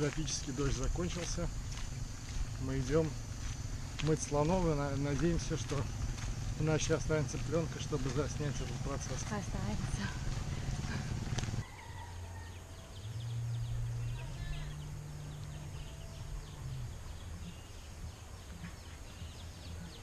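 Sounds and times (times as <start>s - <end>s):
low rumble: 0.0s - 11.6s
birds chirping: 0.0s - 20.0s
low drone: 12.5s - 20.0s.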